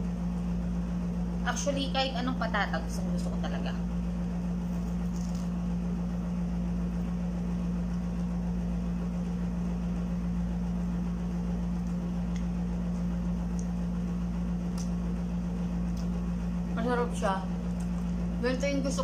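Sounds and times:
air conditioner humming: 0.0 - 19.0
food crunching while chewed: 4.6 - 5.8.

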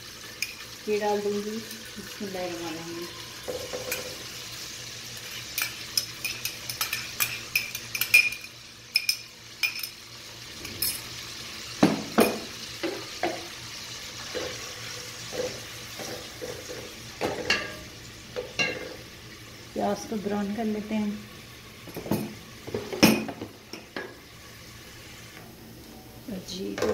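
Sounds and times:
onion sizzling in hot oil: 0.0 - 26.9.

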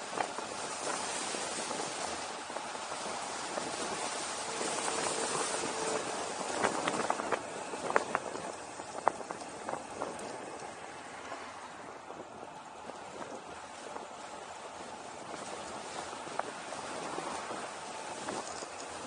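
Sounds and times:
wind rushing over microphone: 0.0 - 19.0
sharp clicks and rattles: 18.2 - 19.0.

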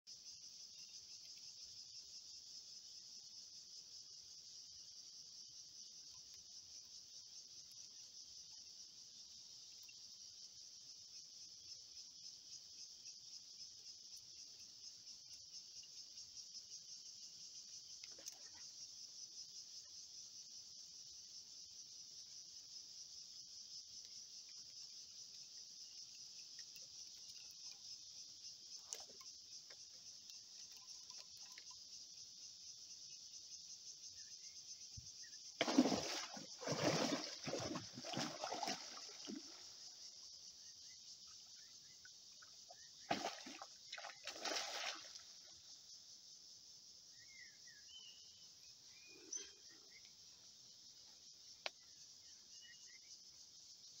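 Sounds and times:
insect chorus: 0.0 - 54.0
fish splashing in water: 35.6 - 39.6, 43.1 - 45.2.

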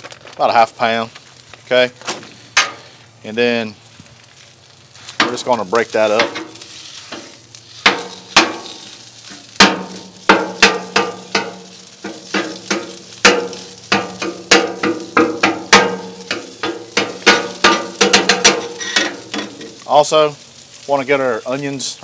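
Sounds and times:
sausage sizzling: 0.0 - 22.0
metal spatula scraping griddle: 5.0 - 19.8.

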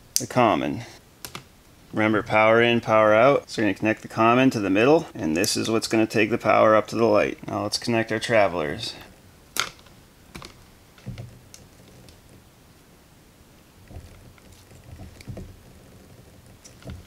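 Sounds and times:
light handling knocks: 9.6 - 12.5, 13.8 - 17.0.

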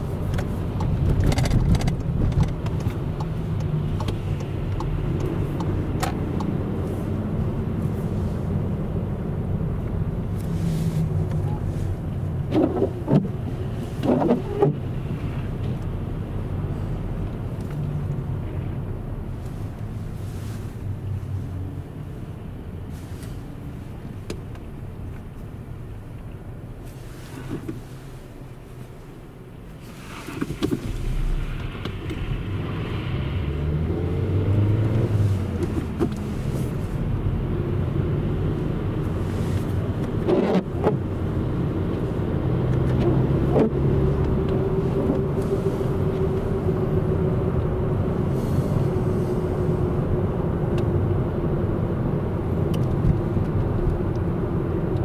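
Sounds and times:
tyres rolling on snowy road: 26.8 - 50.2
car engine running: 29.8 - 55.0.

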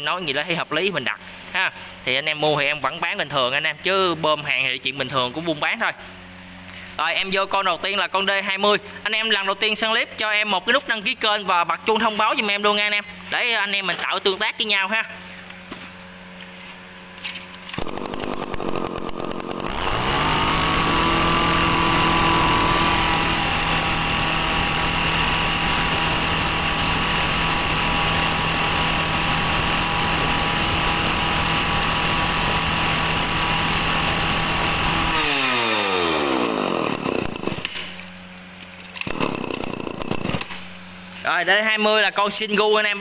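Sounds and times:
chainsaw revving: 17.7 - 38.0, 39.0 - 40.8.

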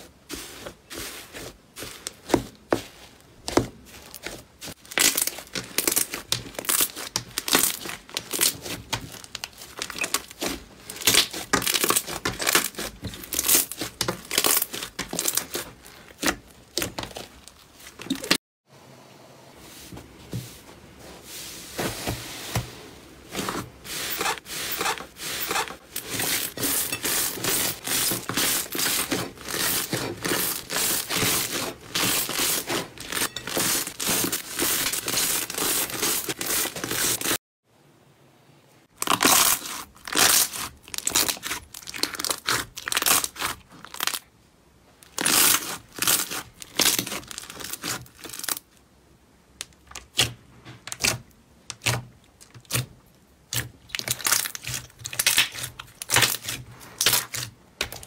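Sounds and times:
slime crackling: 1.0 - 18.4, 39.0 - 44.2
slime squelching and popping: 53.5 - 58.0.

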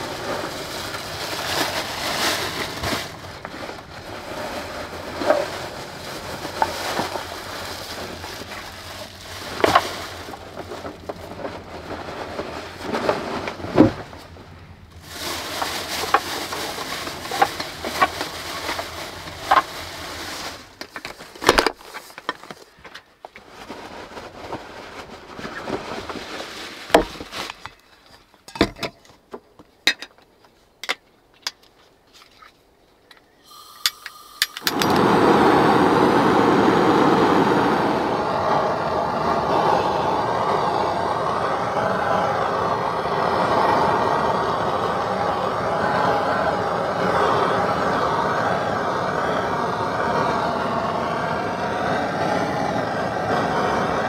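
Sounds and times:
gas torch hissing: 0.0 - 13.9, 15.0 - 20.8, 33.4 - 54.0
plastic bags rustling: 0.0 - 28.3.

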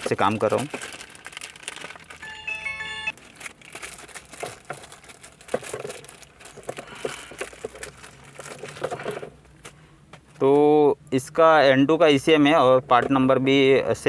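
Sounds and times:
plastic bag crinkling: 0.0 - 9.3
electronic chime: 2.2 - 3.2.

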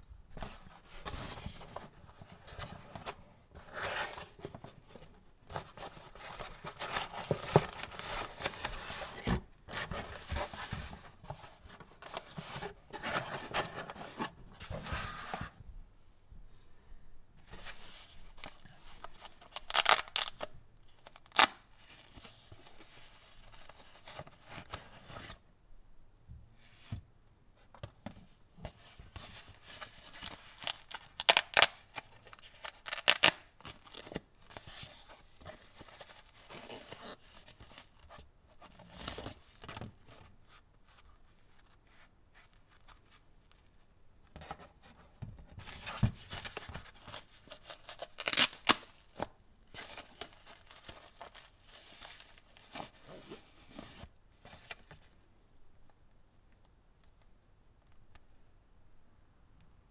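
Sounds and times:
sharp paper crinkles or tears: 19.5 - 20.5, 32.6 - 33.5, 47.8 - 48.9.

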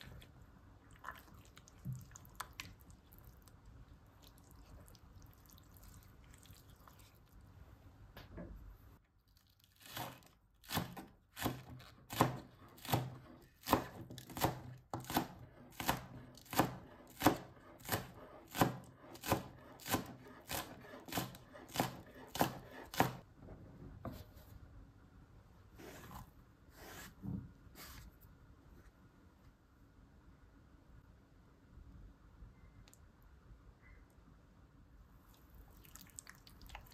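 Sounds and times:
knife chopping on plastic cutting board: 10.7 - 23.2.

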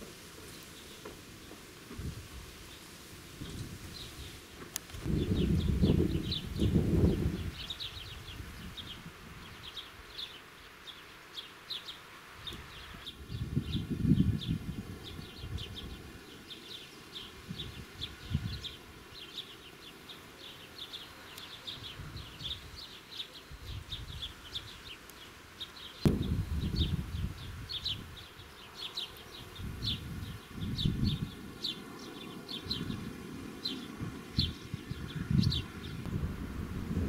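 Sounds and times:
wind buffeting microphone: 1.9 - 9.8, 12.4 - 19.0, 21.8 - 22.8, 26.0 - 28.6, 29.3 - 37.0.

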